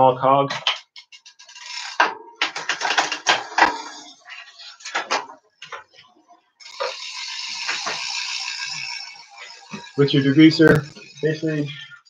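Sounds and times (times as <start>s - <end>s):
bike chain clattering: 0.8s - 5.2s, 6.6s - 11.8s
bike chain and hub whirring: 0.9s - 4.9s, 6.6s - 12.0s.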